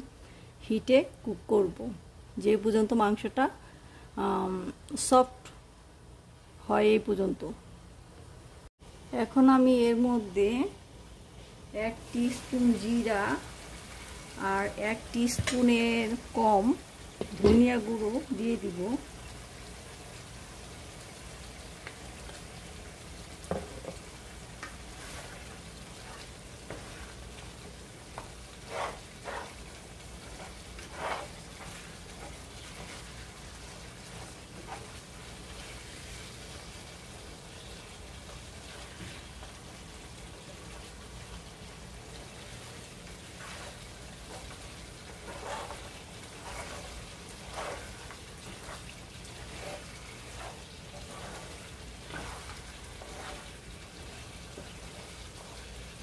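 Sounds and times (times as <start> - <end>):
beef sizzling in a pan: 11.9 - 56.0
spatula scraping and knocking pan: 15.2 - 15.8, 23.4 - 27.4, 28.0 - 35.0, 43.2 - 55.7.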